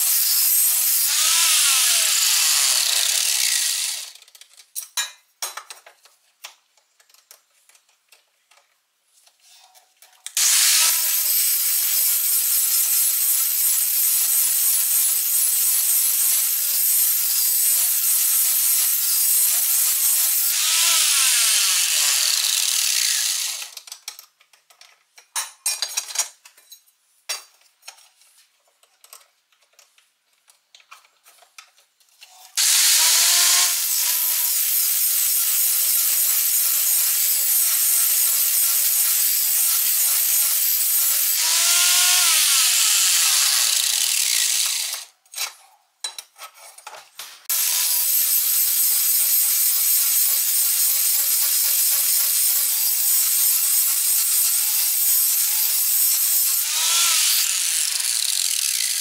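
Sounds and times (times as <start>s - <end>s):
angle grinder grinding steel: 0.0s - 4.2s, 10.4s - 23.8s, 32.5s - 45.1s, 47.5s - 59.0s.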